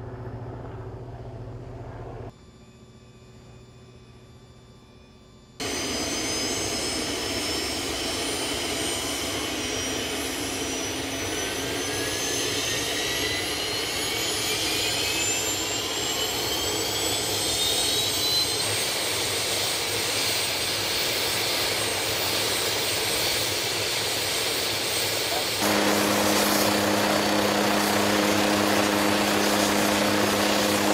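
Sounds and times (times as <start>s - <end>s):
helicopter turbine engine running: 5.6s - 30.9s
whine rising in pitch: 25.6s - 30.9s.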